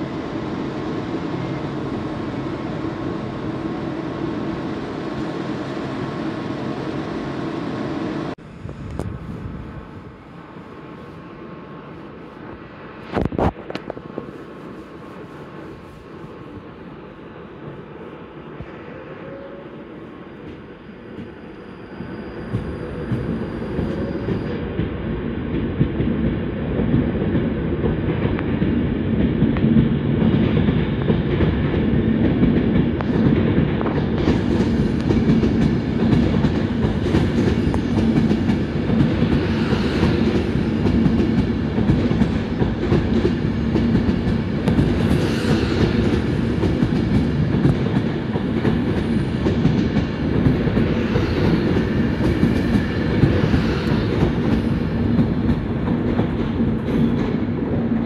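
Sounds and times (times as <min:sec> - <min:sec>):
train wheels on rails: 0:00.0 - 0:58.0.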